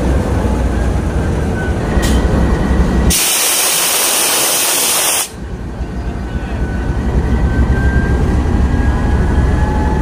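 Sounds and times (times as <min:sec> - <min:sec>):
locomotive engine rumbling: 0:00.0 - 0:10.0
compressed air hissing: 0:03.1 - 0:05.4.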